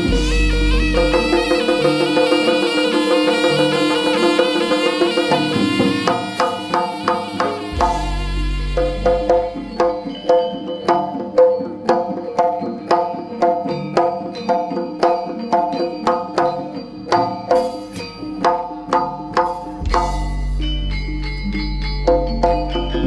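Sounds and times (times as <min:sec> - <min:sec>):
hand drum strokes: 0:00.0 - 0:12.1, 0:17.1 - 0:20.7
ringing metallophone notes: 0:00.0 - 0:23.0.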